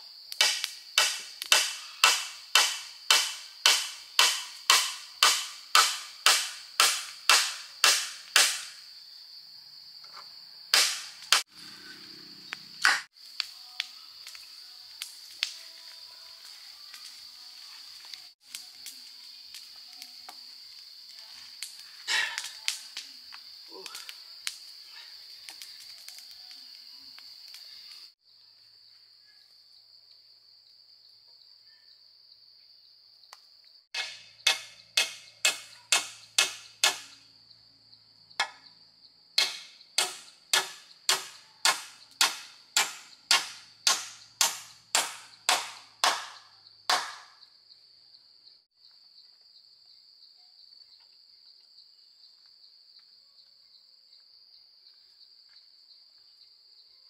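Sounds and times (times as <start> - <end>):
insects droning: 0.0 - 57.0
sharp tool strikes: 0.4 - 8.8, 10.7 - 11.5, 34.0 - 37.2, 39.4 - 47.3.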